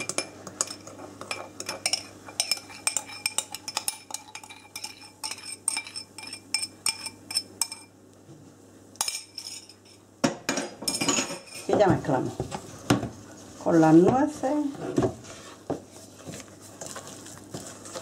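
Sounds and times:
spoon scraping metal bowl: 0:00.0 - 0:07.8.

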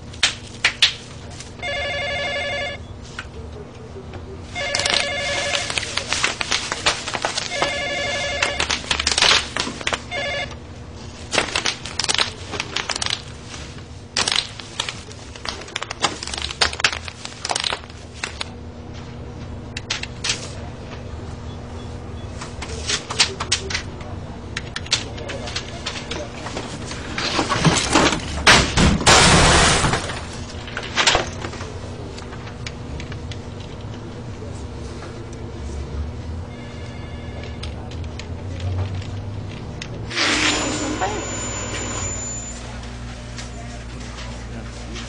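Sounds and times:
telephone ringing electronic trills: 0:01.6 - 0:02.9, 0:04.5 - 0:06.0, 0:07.3 - 0:09.2, 0:09.8 - 0:10.8, 0:36.4 - 0:37.9, 0:40.1 - 0:43.9.

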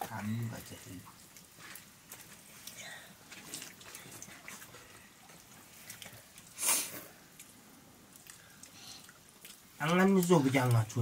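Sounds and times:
small clicks and wet squishes: 0:00.0 - 0:11.0
hands mixing rice on metal plates: 0:09.4 - 0:11.0.

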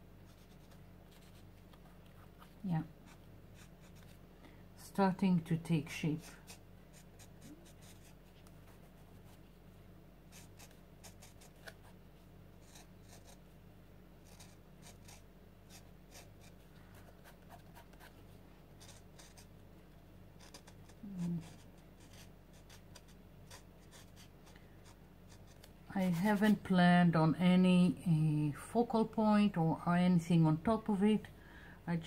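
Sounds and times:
steady low hum: 0:00.0 - 0:32.0
marker scratching on paper: 0:06.1 - 0:09.4, 0:10.3 - 0:11.8, 0:12.6 - 0:13.4, 0:14.2 - 0:16.6, 0:18.8 - 0:19.5, 0:20.4 - 0:26.6
person humming: 0:21.0 - 0:21.5.

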